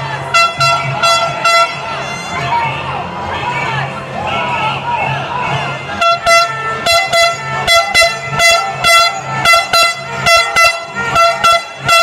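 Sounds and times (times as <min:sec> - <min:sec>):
air horn blasts: 0:00.1 - 0:02.6, 0:05.5 - 0:12.0.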